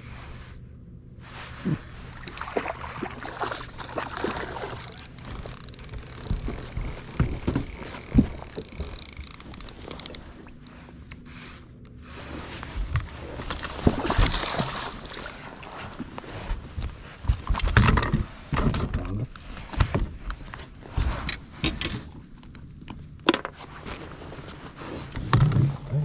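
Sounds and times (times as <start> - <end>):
low steady hum: 0.0 - 26.0
rod and reel handling knocks: 4.8 - 10.2.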